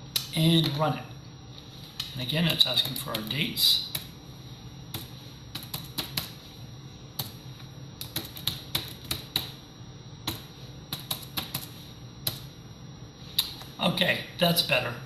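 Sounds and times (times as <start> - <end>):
computer keyboard typing: 4.9 - 6.4, 8.0 - 9.6, 10.3 - 12.5.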